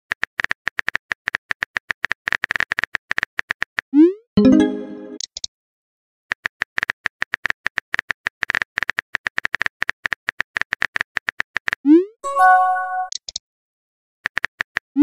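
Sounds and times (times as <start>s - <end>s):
rising blip and chime: 4.4s - 5.2s.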